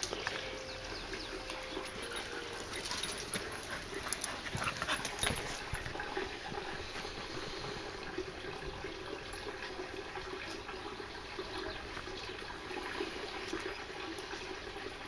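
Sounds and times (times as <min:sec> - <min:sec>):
dog whining and yipping: 0:00.6 - 0:05.6.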